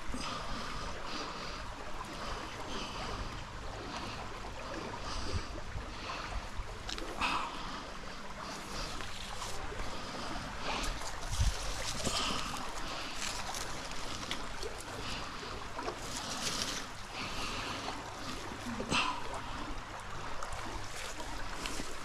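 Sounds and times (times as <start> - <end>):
stream water running: 0.0 - 22.0
wind rumbling on microphone: 8.4 - 14.7
rope rustling: 10.7 - 14.6, 16.0 - 16.9.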